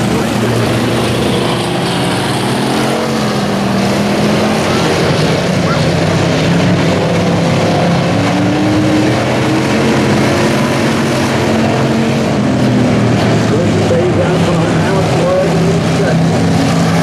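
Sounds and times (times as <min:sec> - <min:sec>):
race car engines at speed: 0:00.0 - 0:17.0.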